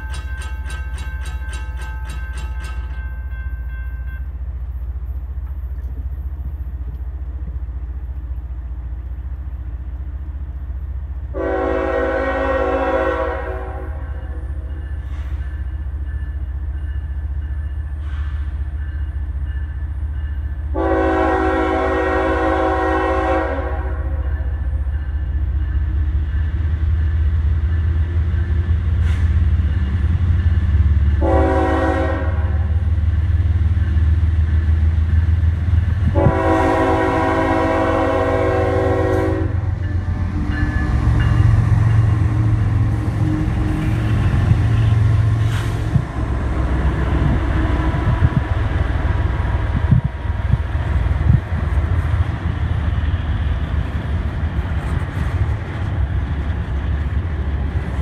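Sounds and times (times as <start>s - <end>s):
railroad crossing bell ringing: 0.0s - 4.7s, 11.6s - 22.0s, 22.8s - 33.0s, 33.8s - 45.4s
train rumble: 0.0s - 58.0s
train horn blasts: 11.3s - 15.4s, 20.7s - 24.5s, 31.1s - 32.8s, 36.0s - 46.1s.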